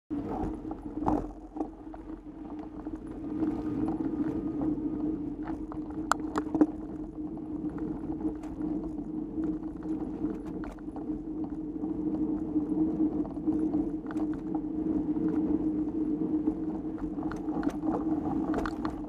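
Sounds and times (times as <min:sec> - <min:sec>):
bike tyres and drivetrain hum: 0:00.1 - 0:19.0.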